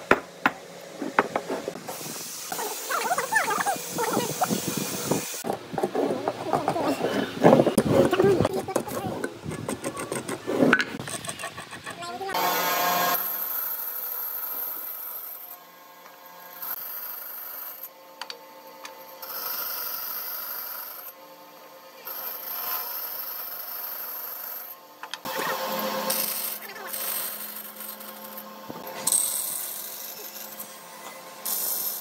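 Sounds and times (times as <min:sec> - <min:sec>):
tool rubbing on wood: 0:00.9 - 0:12.2.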